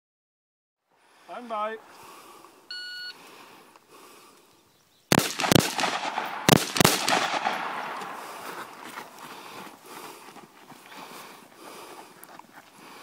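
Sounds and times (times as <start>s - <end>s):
rifle shots with echo: 5.1s - 8.8s.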